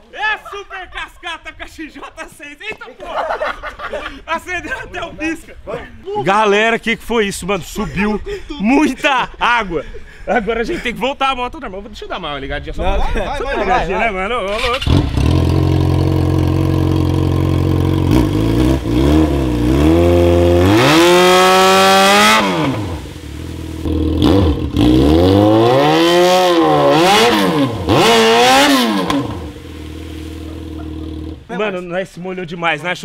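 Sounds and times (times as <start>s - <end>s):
motorcycle engine revving: 14.5s - 31.5s
hiss of thrown water: 22.3s - 23.9s, 29.4s - 31.2s.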